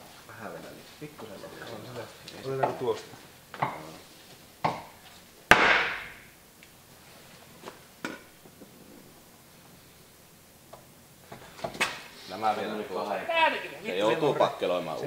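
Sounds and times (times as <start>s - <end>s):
hammer knocking on sheet steel: 4.6s - 4.9s.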